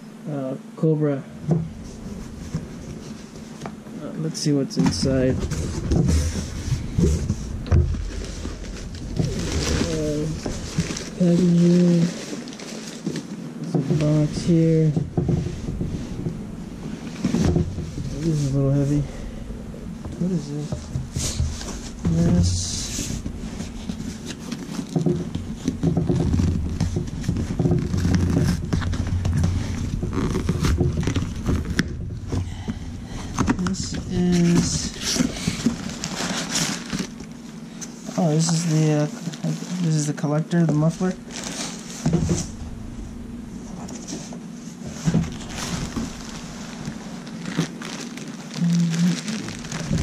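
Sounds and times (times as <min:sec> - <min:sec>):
low pulsing hum: 0:00.0 - 0:38.0, 0:39.3 - 0:50.0
packing paper rustling: 0:01.7 - 0:50.0
cardboard tearing: 0:04.8 - 0:13.4, 0:20.2 - 0:31.9, 0:33.4 - 0:37.2, 0:45.0 - 0:50.0.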